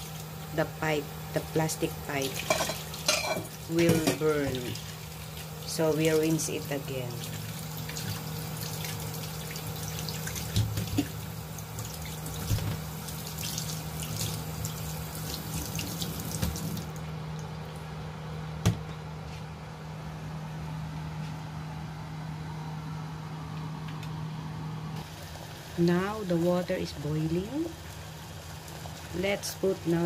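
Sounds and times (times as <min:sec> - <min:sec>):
tap water splashing into sink: 0:07.9 - 0:11.2, 0:15.3 - 0:16.9.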